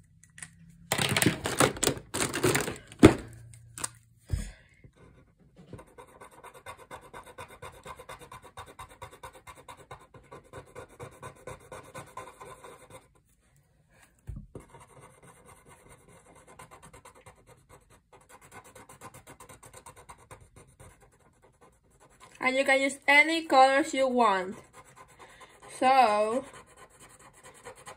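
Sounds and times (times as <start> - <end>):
marker scratching on paper: 5.8 - 13.2, 14.6 - 27.9.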